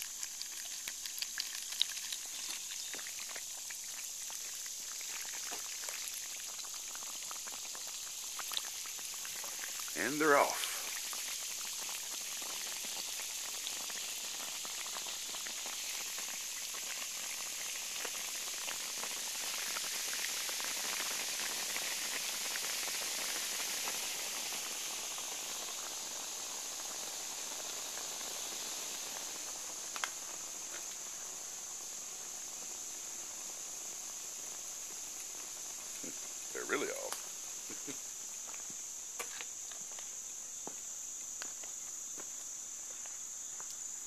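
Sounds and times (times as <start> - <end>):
metal fizzing in acid: 0.0 - 31.2.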